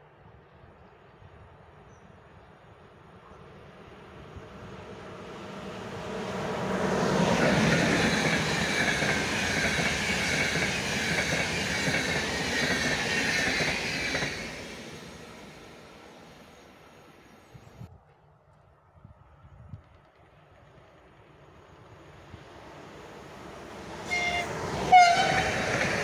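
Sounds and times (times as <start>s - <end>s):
train wheels rumbling on rail: 4.3s - 16.8s, 19.7s - 26.0s.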